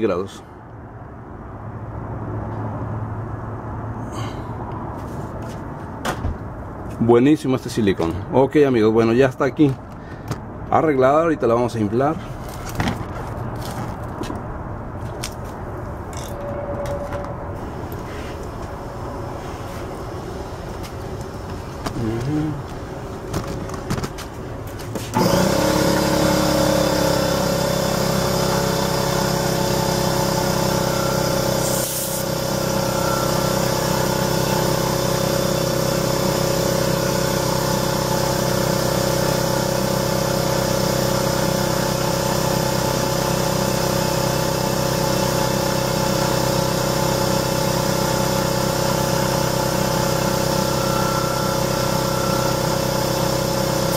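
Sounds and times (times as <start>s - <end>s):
air compressor running: 17.6s - 23.8s, 24.9s - 53.9s
air hissing: 31.4s - 34.2s.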